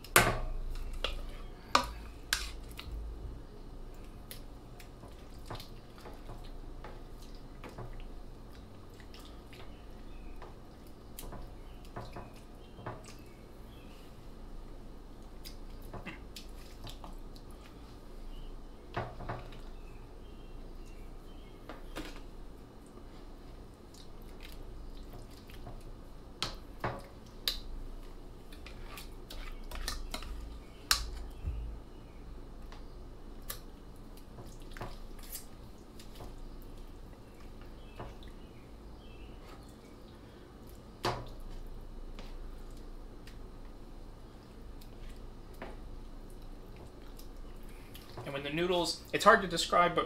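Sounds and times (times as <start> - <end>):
wet squelches of sauce: 3.9 - 10.1, 15.2 - 18.1, 22.8 - 25.9, 33.4 - 38.5, 44.4 - 48.3.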